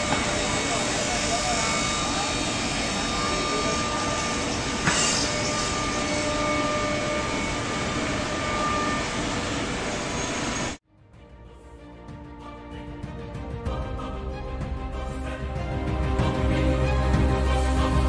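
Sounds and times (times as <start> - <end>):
factory machinery drone: 0.0 - 10.8
quiet music: 10.9 - 18.0.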